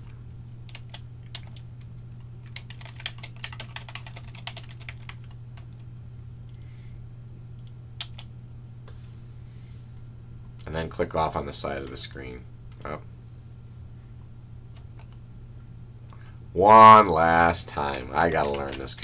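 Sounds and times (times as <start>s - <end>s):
steady low hum: 0.0s - 19.0s
computer keyboard typing: 0.7s - 5.8s, 8.0s - 8.3s, 14.8s - 15.2s, 17.8s - 19.0s.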